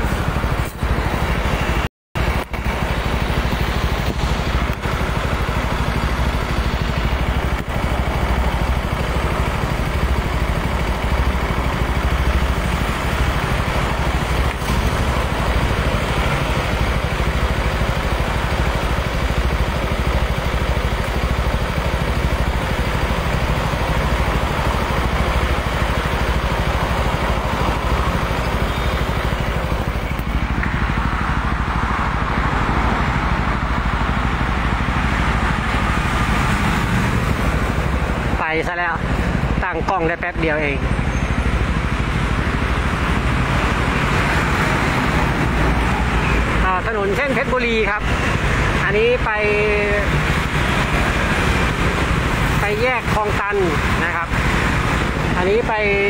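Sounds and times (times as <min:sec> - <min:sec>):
road traffic rumbling: 0:00.0 - 0:56.0.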